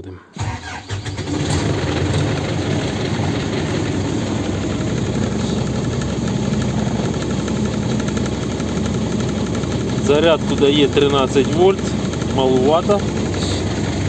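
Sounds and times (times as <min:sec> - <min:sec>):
engine idling: 0:00.4 - 0:14.0.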